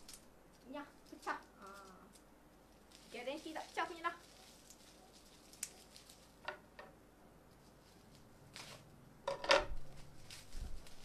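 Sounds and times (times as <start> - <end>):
plastic wrapping crinkling: 2.8 - 6.6, 9.7 - 11.0.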